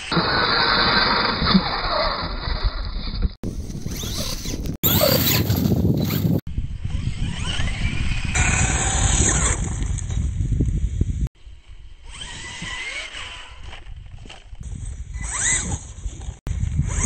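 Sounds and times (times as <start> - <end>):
electric motor whining: 3.6 - 10.1, 12.0 - 14.4, 15.1 - 16.0.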